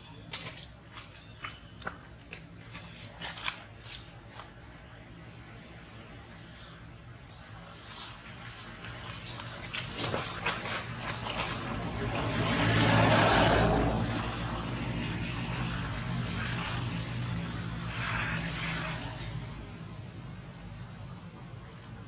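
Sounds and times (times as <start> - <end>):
engine passing by: 7.6 - 21.2.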